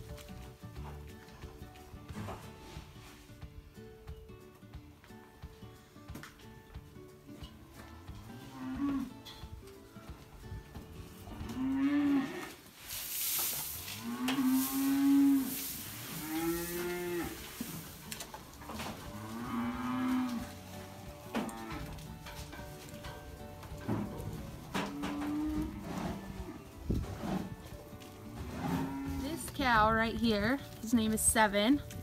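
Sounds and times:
cows mooing: 8.3s - 9.2s, 11.1s - 12.6s, 13.9s - 17.7s, 18.5s - 22.1s, 24.4s - 26.7s, 28.2s - 29.5s
feed being poured: 12.8s - 16.8s.

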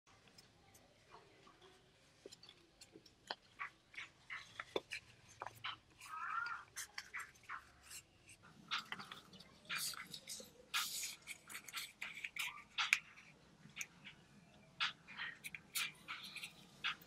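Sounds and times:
squeaky rub of paper: 4.3s - 13.4s, 14.9s - 17.0s.

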